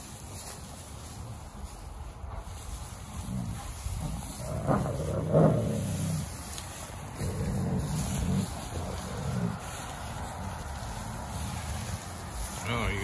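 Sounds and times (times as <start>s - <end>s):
dogs growling: 2.9s - 12.6s.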